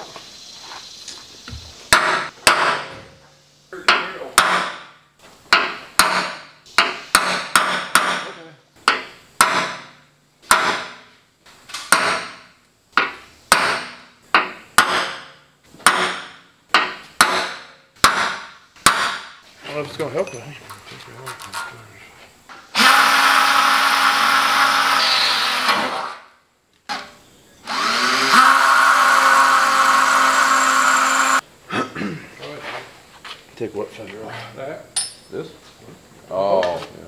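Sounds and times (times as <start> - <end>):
hammer striking metal punch: 1.9 - 3.0, 3.9 - 4.9, 5.5 - 11.0, 11.9 - 19.3.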